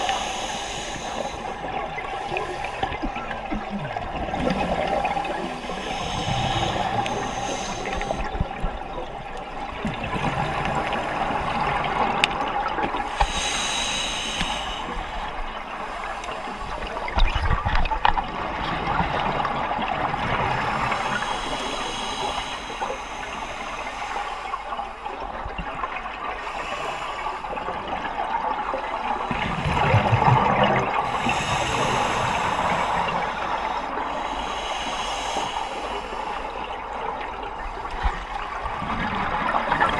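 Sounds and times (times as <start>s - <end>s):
scuba regulator air hissing: 0.0s - 2.9s, 5.5s - 8.3s, 13.1s - 15.3s, 20.6s - 24.6s, 31.0s - 36.6s
bubbles gurgling underwater: 29.2s - 33.3s.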